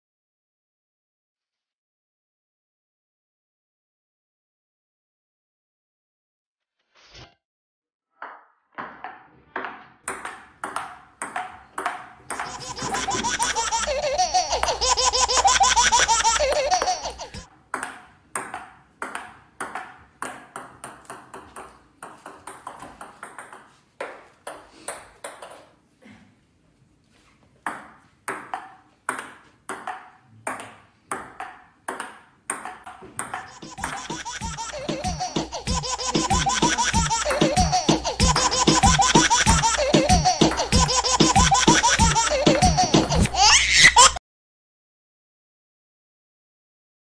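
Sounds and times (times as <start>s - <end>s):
ping-pong ball hits: 8.2s - 12.9s, 17.7s - 25.7s, 27.6s - 35.5s, 39.5s - 40.9s.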